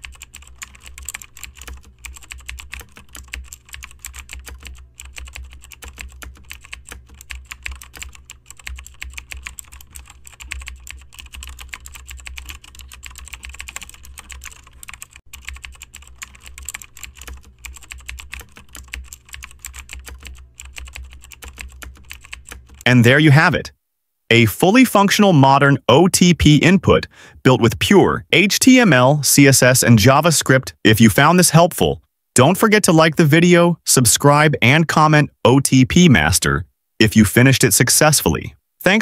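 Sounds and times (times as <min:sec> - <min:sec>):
fast keyboard typing: 0:00.0 - 0:23.0.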